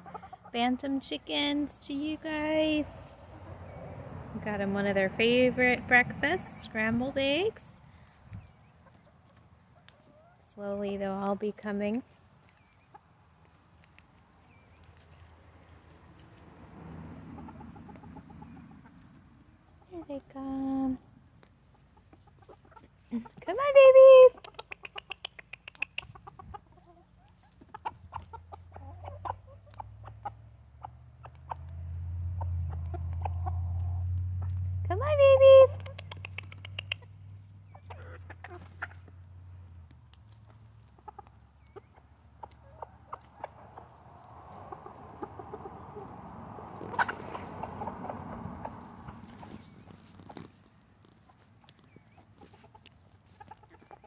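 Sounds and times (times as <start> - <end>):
chickens clucking softly: 0.0 - 0.7, 8.3 - 10.5, 17.2 - 20.0, 21.4 - 23.5, 24.3 - 34.7, 35.8 - 39.2, 40.5 - 50.0, 51.1 - 54.0.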